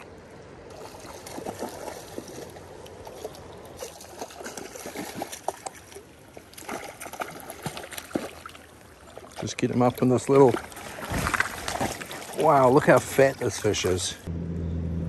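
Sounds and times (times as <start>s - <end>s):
fish splashing: 0.7s - 14.2s.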